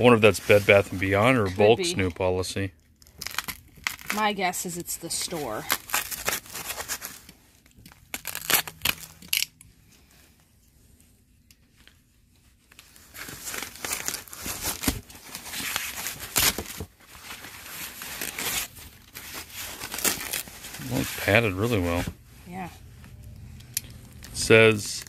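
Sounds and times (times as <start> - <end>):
foam packing wrap crinkling: 2.9 - 4.5, 5.1 - 9.4, 12.4 - 22.2, 23.8 - 25.0.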